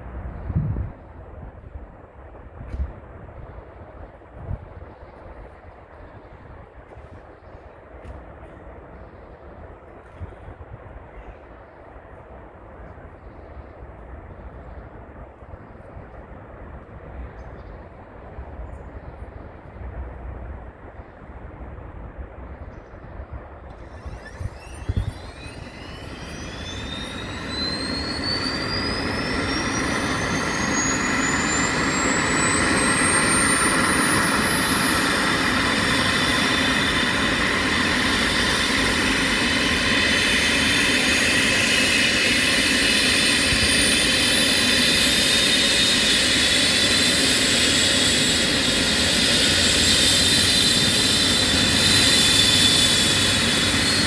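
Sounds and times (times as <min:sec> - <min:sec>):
helicopter turbine whine: 0:20.3 - 0:54.0.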